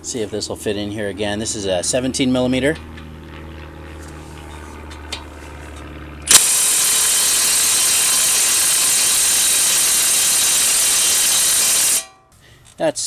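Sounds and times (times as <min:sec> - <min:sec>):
impact wrench hammering: 0:06.3 - 0:12.3.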